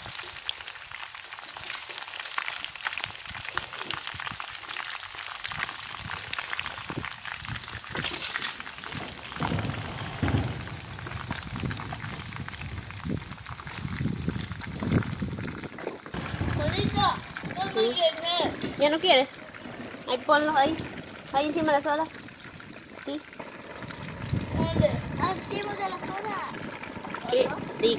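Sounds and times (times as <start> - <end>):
fish frying in hot oil: 0.0 - 27.9
low rumbling: 6.8 - 27.9.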